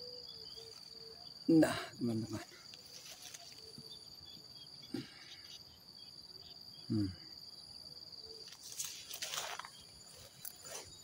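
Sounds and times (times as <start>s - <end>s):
insects chirring: 0.0s - 11.0s
man's voice murmuring: 1.5s - 2.6s, 6.9s - 7.3s.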